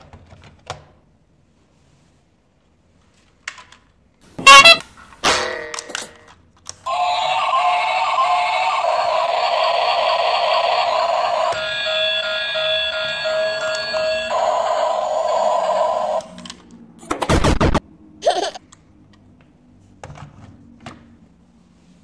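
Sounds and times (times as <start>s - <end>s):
loud pitched toy sounds: 4.4s - 4.8s, 6.8s - 16.3s
toy playing tinny warbling tune: 4.5s - 4.8s, 6.9s - 16.4s.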